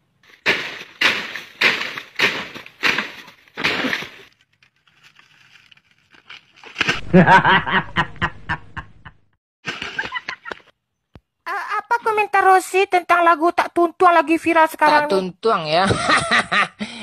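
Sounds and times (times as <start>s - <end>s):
heavy knocks or crashes: 0.4s - 4.3s
man laughing loudly: 7.0s - 9.2s, 15.9s - 16.8s.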